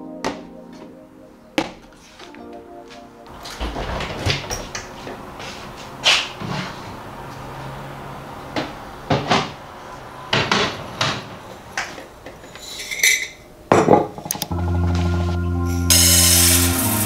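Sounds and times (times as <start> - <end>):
music: 0.0 - 3.4, 14.5 - 17.0.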